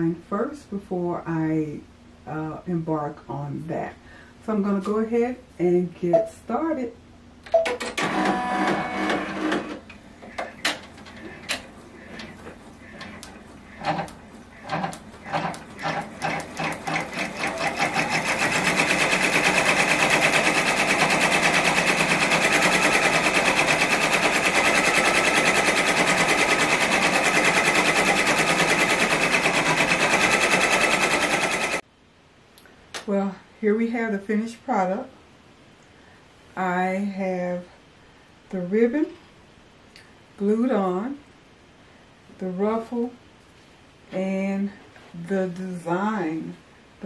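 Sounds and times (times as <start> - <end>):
embroidery machine stitching: 7.9 - 31.8.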